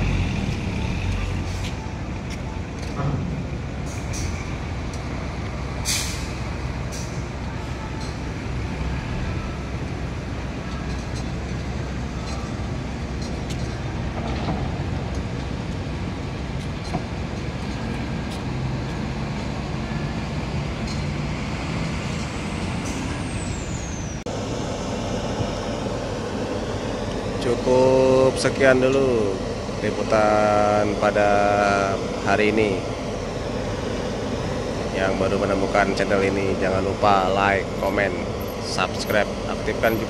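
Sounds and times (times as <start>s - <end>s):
truck engine running: 0.0s - 40.0s
sharp hiss: 5.8s - 7.2s.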